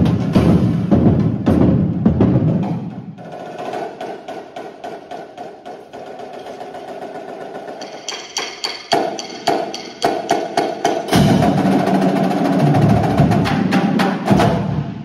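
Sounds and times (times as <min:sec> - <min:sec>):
bass drums: 0:00.0 - 0:03.0, 0:11.1 - 0:15.0.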